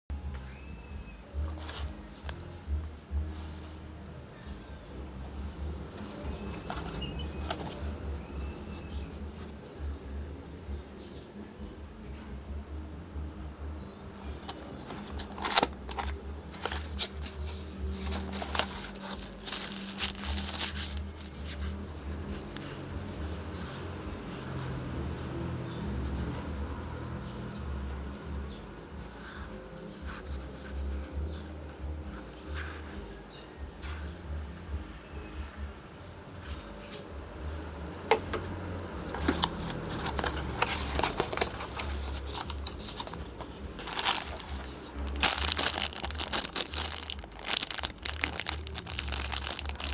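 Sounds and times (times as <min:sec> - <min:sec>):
paper rustling: 0:05.3 - 0:09.6, 0:14.2 - 0:24.8, 0:29.1 - 0:33.2, 0:39.0 - 0:49.9.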